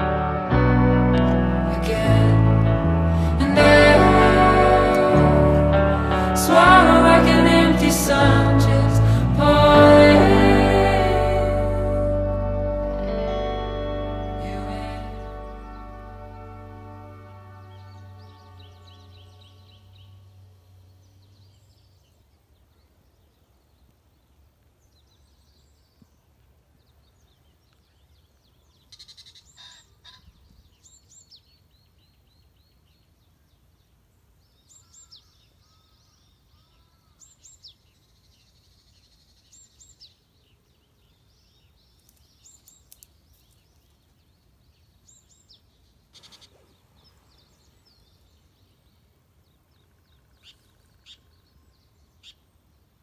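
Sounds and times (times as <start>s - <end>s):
background music: 0.0s - 19.8s
low steady hum: 0.0s - 23.6s
birdsong chirps and trills: 15.0s - 53.0s.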